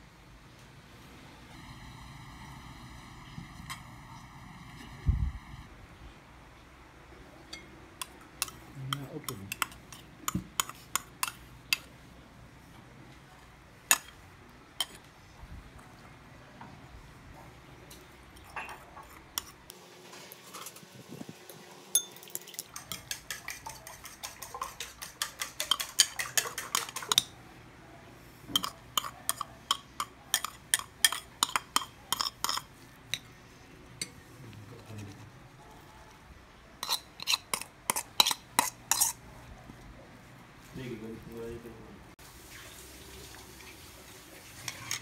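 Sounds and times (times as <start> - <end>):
metal spoon clinking on bowls: 7.5 - 11.9, 21.9 - 27.4, 28.5 - 33.3, 36.8 - 39.2.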